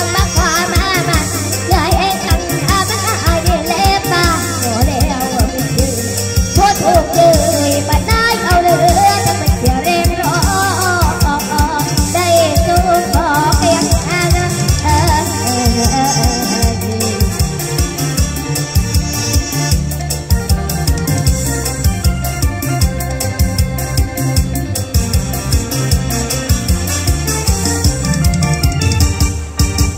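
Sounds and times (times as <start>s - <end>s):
girl singing into microphone: 0.0s - 5.9s, 6.5s - 17.2s
backing track with steady beat: 0.0s - 29.9s.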